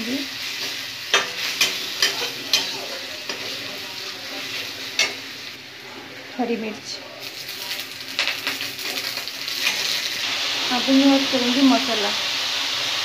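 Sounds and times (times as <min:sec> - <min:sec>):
food sizzling in oil: 0:00.0 - 0:13.0.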